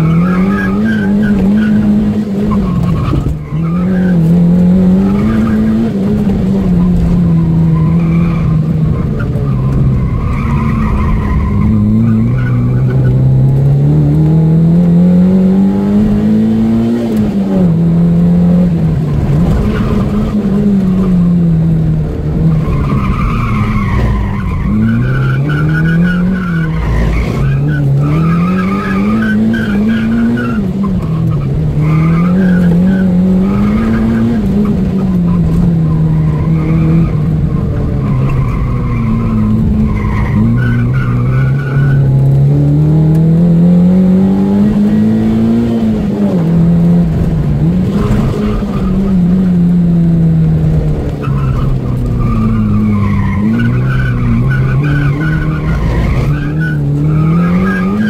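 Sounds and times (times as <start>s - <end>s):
car engine revving: 0.0s - 58.0s
tyres squealing: 51.2s - 58.0s.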